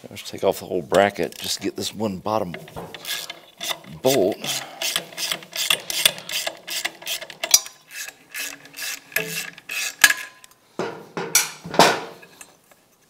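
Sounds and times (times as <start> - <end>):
socket ratchet clicking: 2.5 - 10.3.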